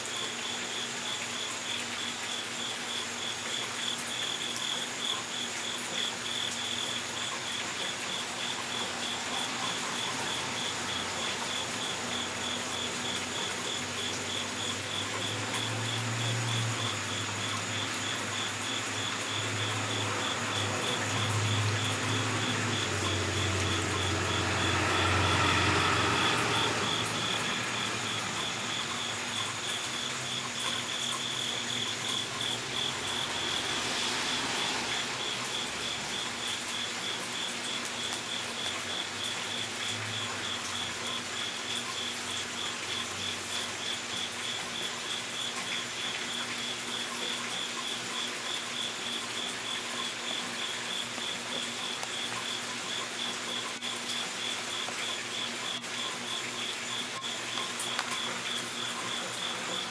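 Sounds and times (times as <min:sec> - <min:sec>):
insect chirping: 0:00.0 - 0:59.9.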